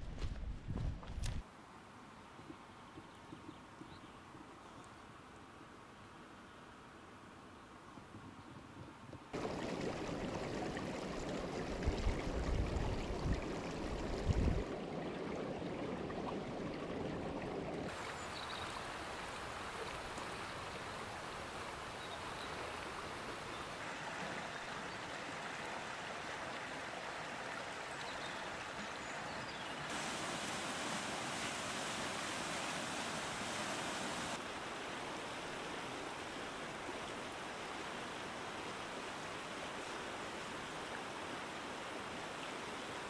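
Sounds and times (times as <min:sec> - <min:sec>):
stream water rushing: 0:09.3 - 0:43.0
wind buffeting microphone: 0:11.6 - 0:14.8.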